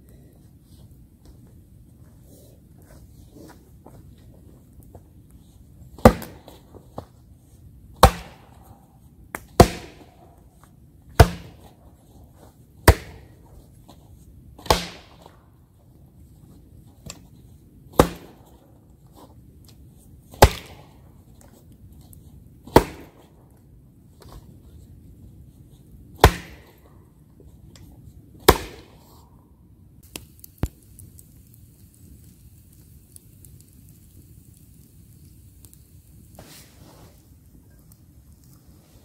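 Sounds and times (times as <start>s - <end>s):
hatchet chopping wood: 6.0s - 6.4s, 8.0s - 8.4s, 9.4s - 10.1s, 11.2s - 11.7s, 12.9s - 13.3s, 14.6s - 15.2s, 18.0s - 18.4s, 20.4s - 20.8s, 22.7s - 23.2s, 26.2s - 26.8s, 28.4s - 28.9s.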